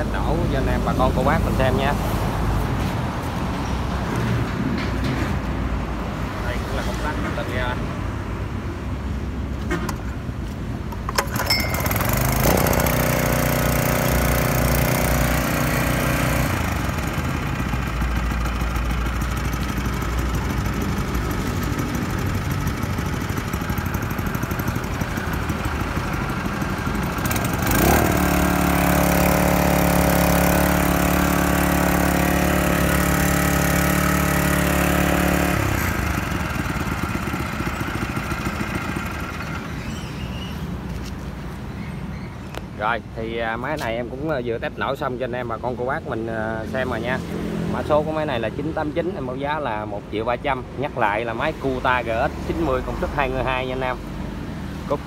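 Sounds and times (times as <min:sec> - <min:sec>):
small gasoline engine running: 0:11.1 - 0:40.4.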